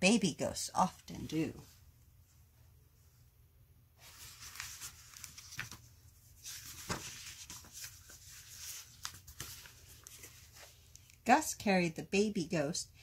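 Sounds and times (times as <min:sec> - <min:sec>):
book pages turning: 0:04.0 - 0:11.2.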